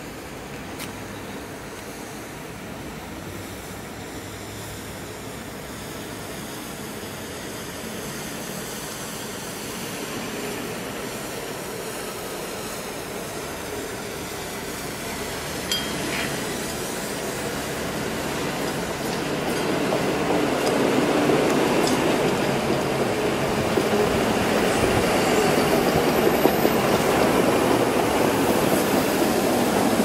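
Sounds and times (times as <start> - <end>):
truck rumbling along rails: 10.3 - 30.0
sharp metal clink: 15.7 - 16.3.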